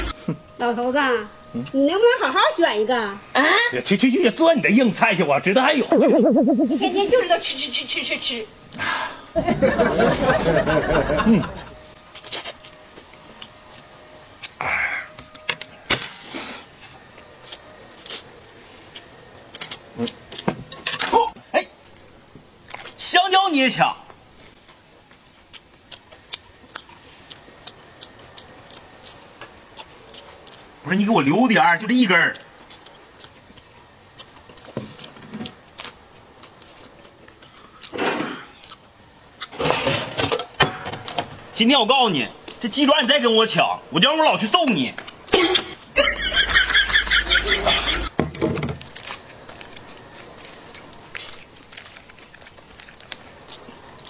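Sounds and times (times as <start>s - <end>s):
chewing clicks and smacks: 24.6s - 30.8s, 32.4s - 37.9s, 48.9s - 54.0s.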